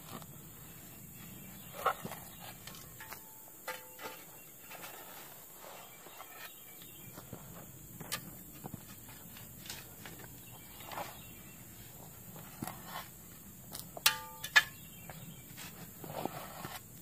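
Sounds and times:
spade crunching into gravel: 0:01.2 - 0:11.5.

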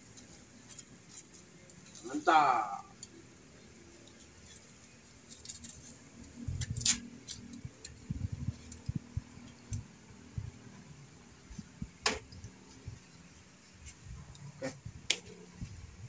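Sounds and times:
wood fire crackling: 0:00.0 - 0:16.0.

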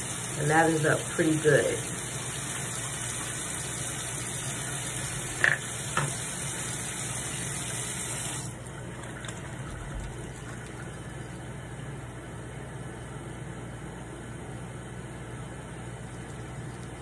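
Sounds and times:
tap water running into sink: 0:00.0 - 0:11.4.

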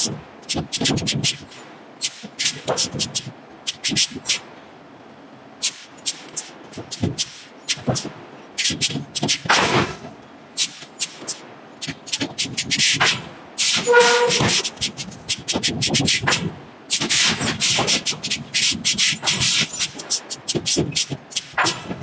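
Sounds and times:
sharp cracks and bangs: 0:06.1 - 0:22.0.

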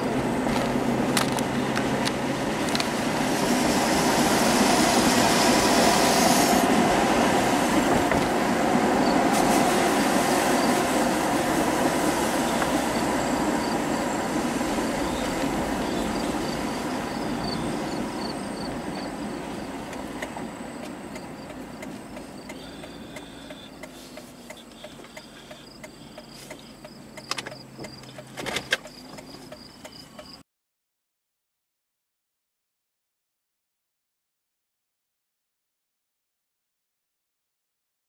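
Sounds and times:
vehicle road and wind noise: 0:00.0 - 0:30.4
insects chirping in pulses: 0:10.0 - 0:30.4
sharp clicks: 0:19.9 - 0:30.4.

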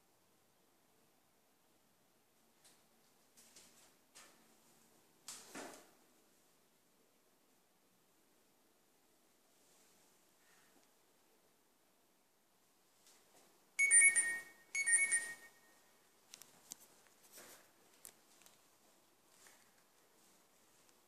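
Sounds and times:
high electronic alert tones: 0:13.8 - 0:15.7.

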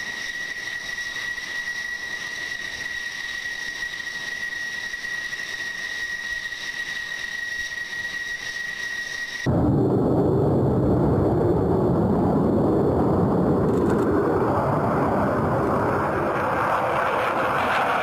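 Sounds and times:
jet engine turbine whine: 0:00.0 - 0:18.0
jet exhaust rush: 0:07.8 - 0:18.0.

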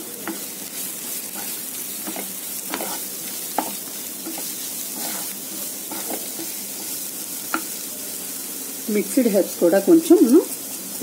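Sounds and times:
masala sizzling in a frying pan: 0:00.0 - 0:11.0
spatula scraping a pan: 0:00.2 - 0:07.8.

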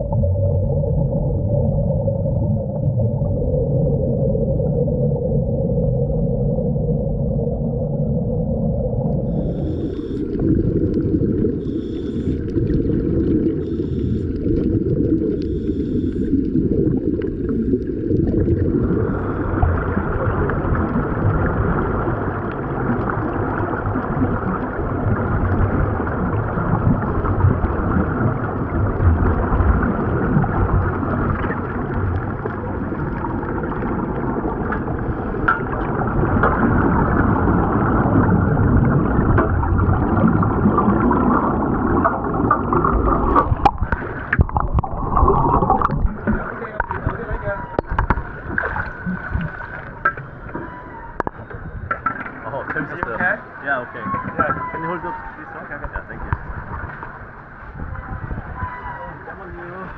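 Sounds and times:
underwater air bubbling and rumbling: 0:00.0 - 0:59.9.

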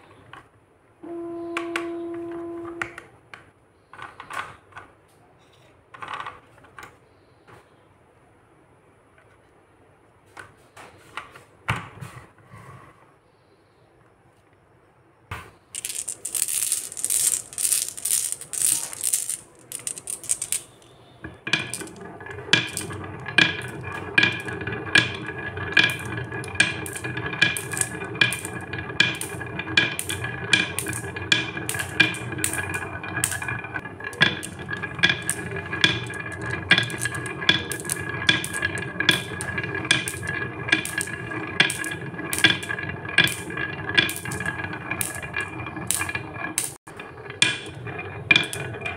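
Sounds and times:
glass marbles clattering: 0:15.8 - 0:48.9
marbles clacking in bends: 0:15.8 - 0:48.9
marbles rolling on wood: 0:15.8 - 0:48.9.

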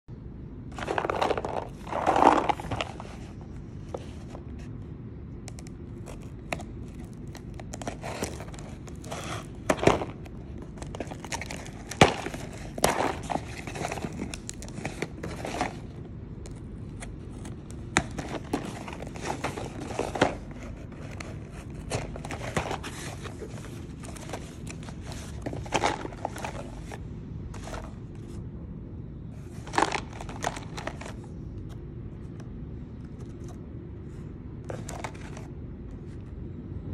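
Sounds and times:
small plastic bottles handled: 0:00.7 - 0:04.7, 0:05.4 - 0:28.0, 0:29.5 - 0:31.7
cardboard flaps rustling and scraping: 0:00.7 - 0:04.8, 0:05.6 - 0:28.4, 0:29.4 - 0:32.3, 0:33.1 - 0:36.2.

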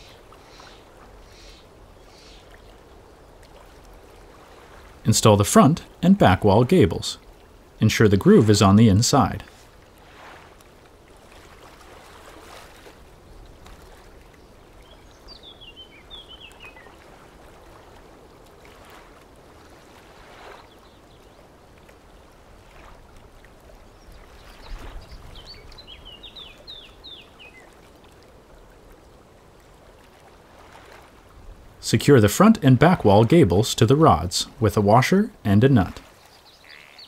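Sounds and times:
songbird chirping: 0:00.0 - 0:03.5, 0:12.8 - 0:17.2, 0:23.8 - 0:28.2, 0:31.8 - 0:37.0.

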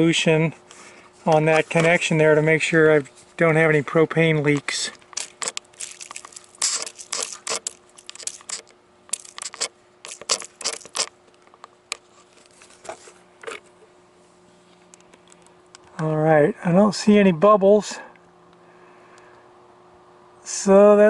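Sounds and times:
spray bottle spritzing: 0:05.2 - 0:11.1.

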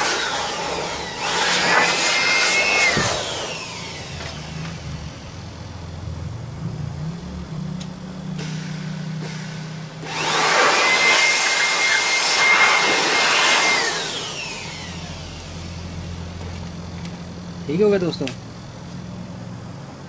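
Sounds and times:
electric air blower whining: 0:00.0 - 0:20.0
low hum: 0:02.9 - 0:10.3.

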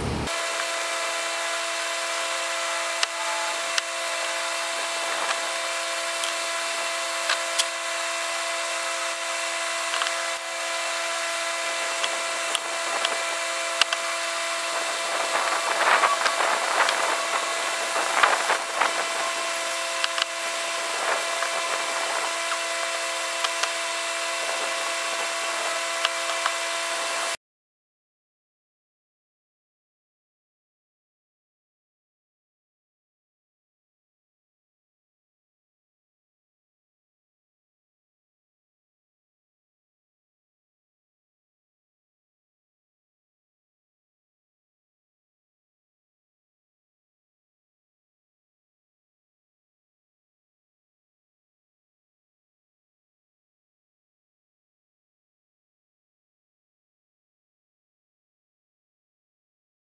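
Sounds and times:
steady hum over hiss: 0:00.0 - 0:27.4
small scrapes and crackles: 0:14.8 - 0:22.7.

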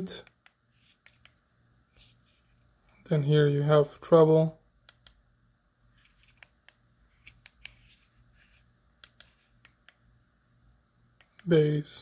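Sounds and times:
remote control clicks and taps: 0:00.2 - 0:01.4, 0:04.8 - 0:05.2, 0:06.2 - 0:07.8, 0:09.0 - 0:10.1, 0:11.2 - 0:11.5.

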